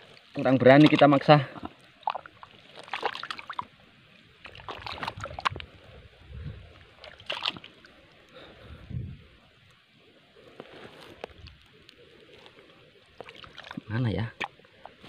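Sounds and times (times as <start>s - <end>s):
hands splashing in muddy water: 0.7s - 3.7s, 4.4s - 5.7s, 6.8s - 8.0s, 13.1s - 14.6s.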